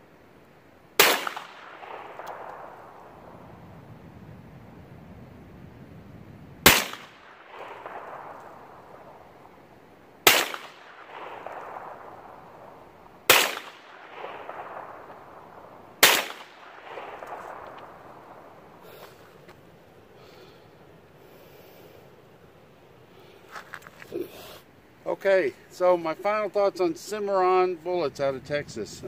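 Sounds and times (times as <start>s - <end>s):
rifle shots: 1.0s - 3.6s, 6.6s - 19.0s
gunshot echo rolling back: 1.0s - 3.7s, 6.6s - 19.4s.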